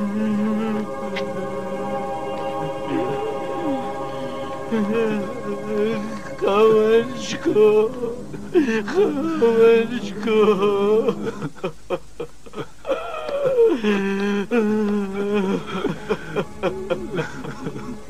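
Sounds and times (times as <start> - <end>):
man sobbing: 0.0 - 18.0
man wailing: 2.6 - 11.5, 12.8 - 18.0.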